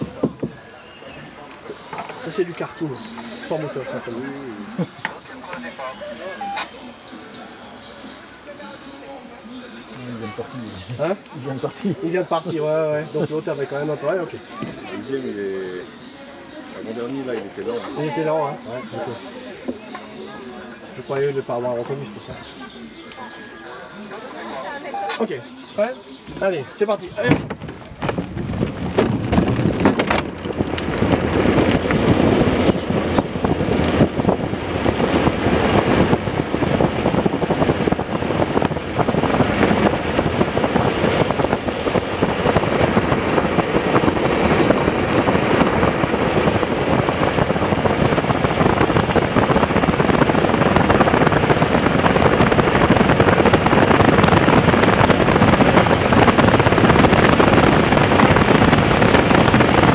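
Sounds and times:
cart wheels rumbling on asphalt: 0.0s - 6.3s, 26.3s - 59.9s
wind buffeting microphone: 0.0s - 6.6s, 27.1s - 59.9s.

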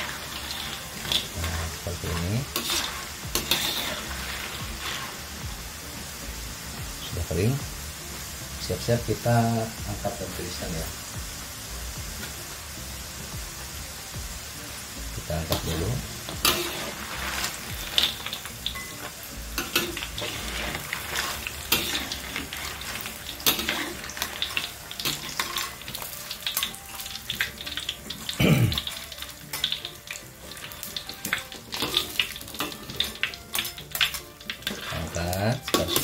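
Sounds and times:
utensils scraping a metal wok: 0.0s - 5.4s, 15.5s - 36.0s
food deep-frying in oil: 0.0s - 36.0s.

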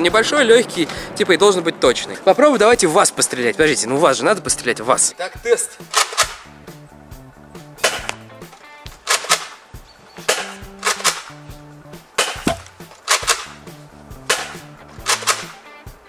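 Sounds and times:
background music: 0.0s - 16.0s
balls smacking target: 7.8s - 9.6s, 10.2s - 11.4s, 12.1s - 13.6s, 14.3s - 15.5s.

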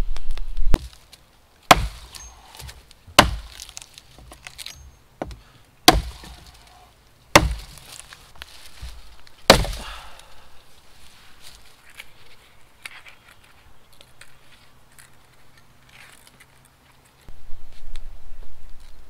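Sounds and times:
blade chopping wood: 0.8s - 1.0s, 1.7s - 6.7s, 7.3s - 8.1s, 8.8s - 9.9s.

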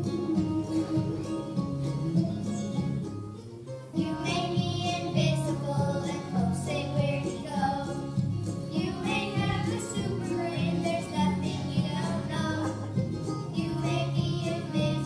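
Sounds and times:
instrumental backing track: 0.0s - 15.0s
children singing: 4.0s - 15.0s.

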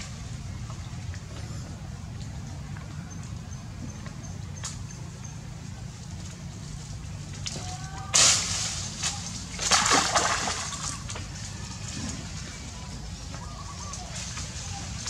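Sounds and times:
splashing in muddy water: 8.2s - 11.4s.

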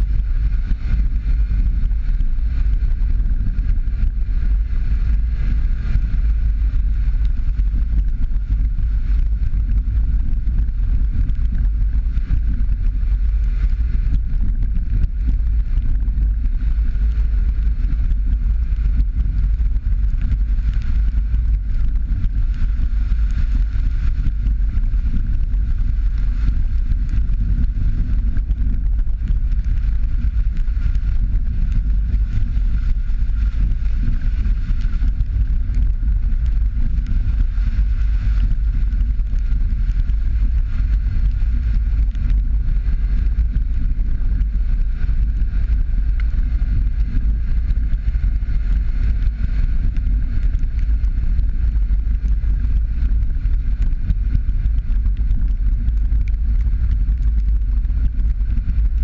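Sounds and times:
car driving on dirt road: 0.0s - 59.0s
low engine rumble: 0.0s - 59.0s
tyre and road noise: 0.0s - 59.0s.

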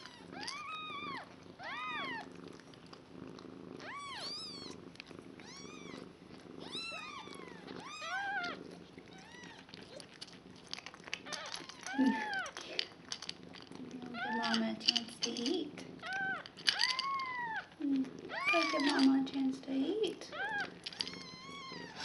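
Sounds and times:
low steady purring: 0.0s - 22.0s
kittens mewing: 11.0s - 13.2s, 16.0s - 19.2s, 20.2s - 22.0s.

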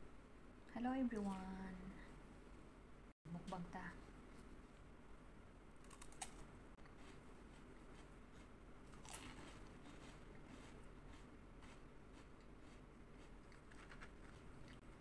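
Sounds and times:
faint chewing: 5.8s - 15.0s.

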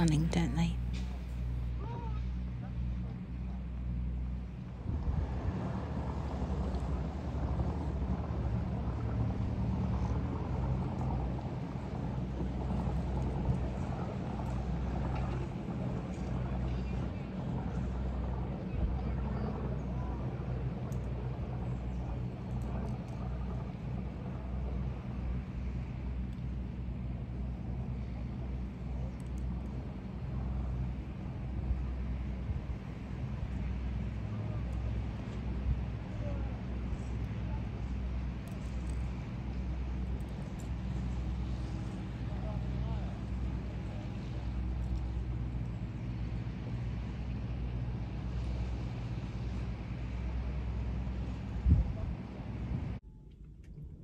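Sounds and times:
boat engine humming: 0.0s - 53.0s.

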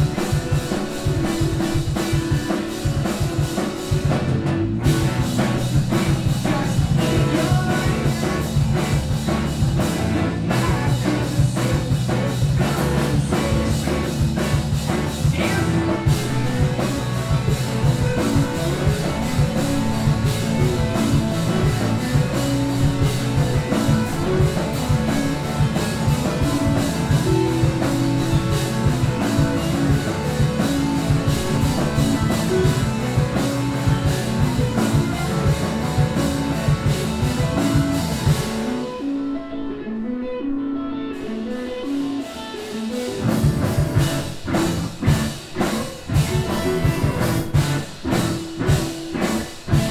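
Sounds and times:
rock band playing live: 0.0s - 49.9s.

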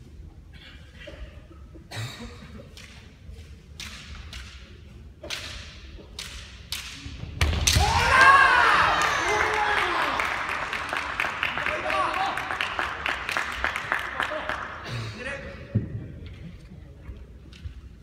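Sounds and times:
sharp cracks echoing in hall: 1.9s - 16.2s
fighters' drawn-out shouts: 7.7s - 10.2s.

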